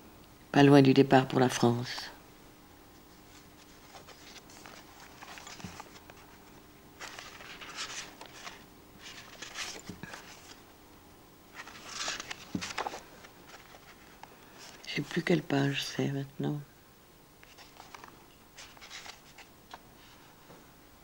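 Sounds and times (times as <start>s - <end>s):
book pages rustling: 3.0s - 10.7s, 11.5s - 15.3s, 17.4s - 20.3s
soft knocks of book: 5.2s - 6.1s, 12.2s - 13.0s.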